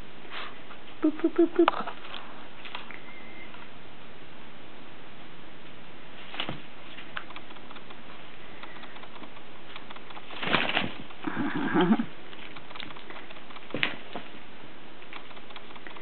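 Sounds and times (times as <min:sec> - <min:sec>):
wing flaps and scrabbling: 0:06.2 - 0:14.4, 0:15.0 - 0:16.0.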